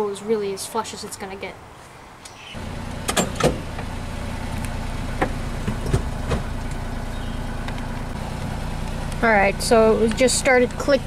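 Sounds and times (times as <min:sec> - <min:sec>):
small engine starting and idling: 0:02.6 - 0:11.0.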